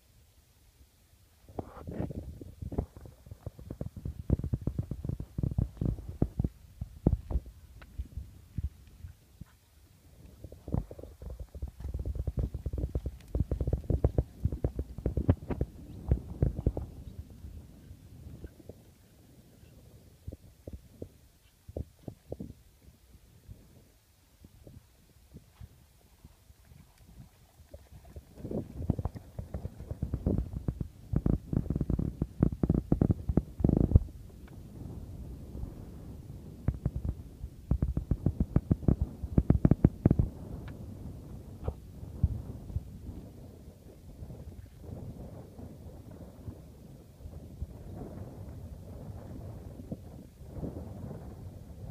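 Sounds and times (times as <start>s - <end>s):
low thumps on microphone: 1.5s - 9.6s, 10.4s - 17.1s, 28.4s - 43.2s
horse hooves on sand: 3.0s - 17.4s.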